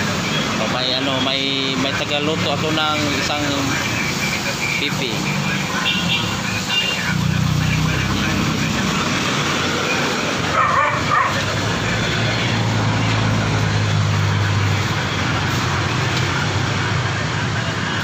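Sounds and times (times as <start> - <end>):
road traffic noise: 0.0 - 18.0.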